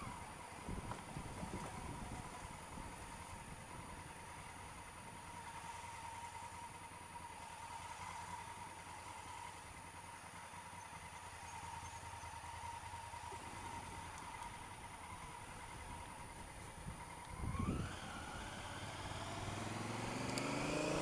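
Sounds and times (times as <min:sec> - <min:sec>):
motorcycle engine low rumble: 0:00.0 - 0:21.0.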